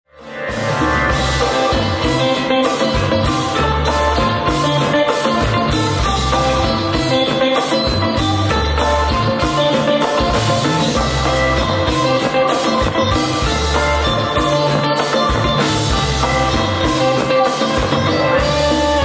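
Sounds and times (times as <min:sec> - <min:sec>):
electric guitar: 0:00.1 - 0:19.0
live band playing: 0:00.1 - 0:19.0.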